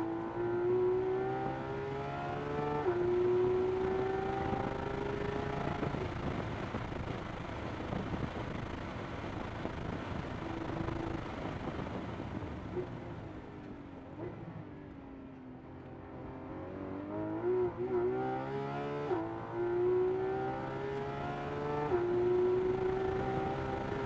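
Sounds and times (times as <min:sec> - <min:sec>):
car engine revving from inside cabin: 0:17.2 - 0:24.0.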